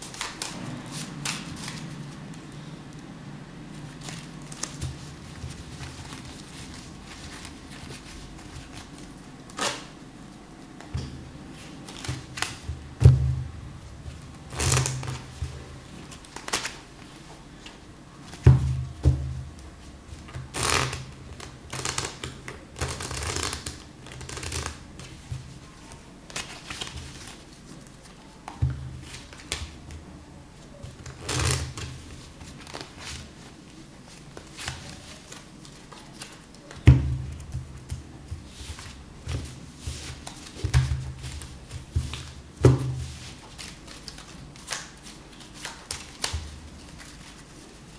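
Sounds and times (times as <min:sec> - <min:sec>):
playing cards snapping and riffling: 0:14.5 - 0:15.5, 0:16.1 - 0:16.8, 0:20.3 - 0:25.2, 0:31.0 - 0:33.2, 0:34.3 - 0:47.5.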